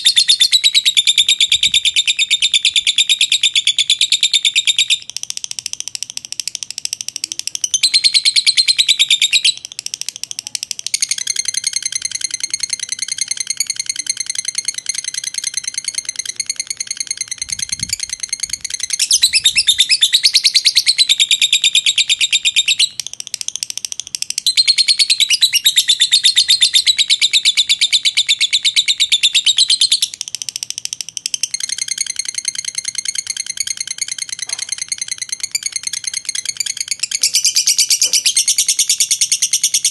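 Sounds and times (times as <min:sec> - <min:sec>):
lovebird shrill chattering: 0:07.3 - 0:23.1, 0:24.3 - 0:30.3, 0:31.0 - 0:39.9.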